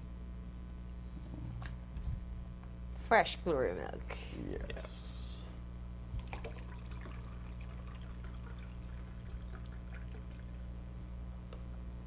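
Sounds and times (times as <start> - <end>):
milk trickling into glass: 6.1 - 10.7.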